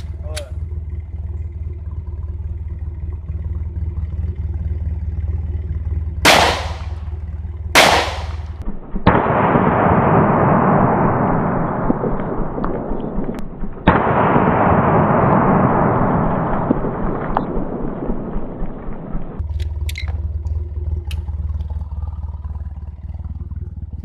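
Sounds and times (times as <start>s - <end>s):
sharp crack: 6.2s - 7.2s, 7.8s - 20.2s
pistol shots: 6.3s - 7.1s, 7.8s - 18.3s.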